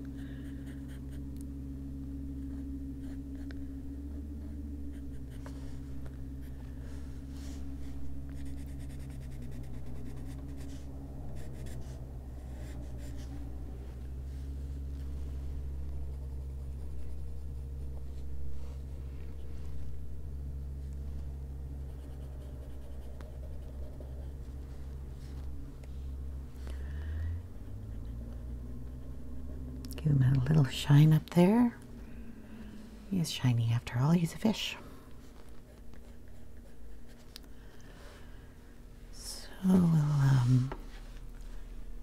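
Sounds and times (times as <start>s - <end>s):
steady low hum: 0.0s - 42.0s
pencil scratching on paper: 0.2s - 1.4s, 2.5s - 3.5s, 4.1s - 5.6s, 8.2s - 13.4s, 21.8s - 24.4s, 27.6s - 29.7s, 35.6s - 37.3s.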